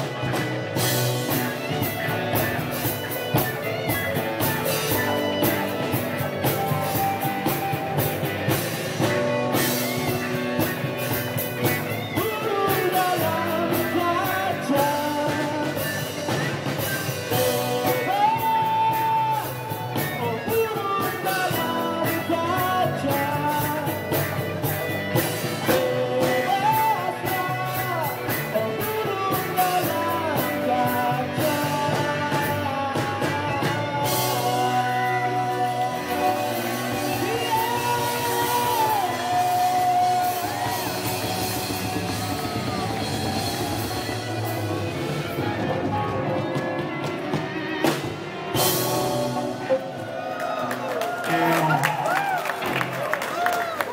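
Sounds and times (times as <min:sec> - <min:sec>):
drum kit: 0:00.0 - 0:53.9
electric guitar: 0:00.0 - 0:53.9
keyboard: 0:00.0 - 0:53.9
lead vocal singing: 0:12.0 - 0:24.5, 0:25.5 - 0:44.2.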